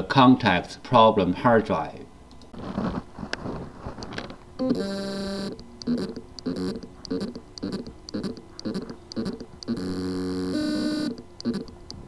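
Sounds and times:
hard drive motor whine: 0:04.1 - 0:12.0
hard drive motor pulsing: 0:04.6 - 0:12.0
small ticks: 0:05.4 - 0:12.0.

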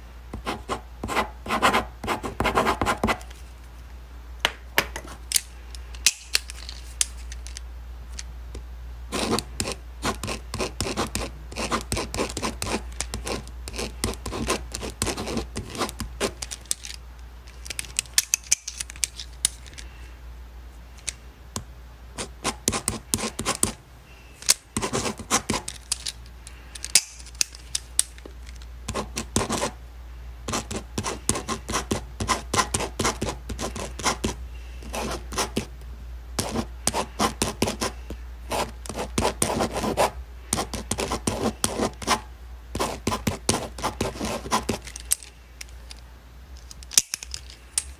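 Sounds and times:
pen scratching on paper: 0:00.4 - 0:03.2, 0:09.1 - 0:16.4, 0:22.2 - 0:23.7, 0:24.8 - 0:25.7, 0:28.9 - 0:29.8, 0:30.5 - 0:35.7, 0:36.4 - 0:42.2, 0:42.8 - 0:44.8.

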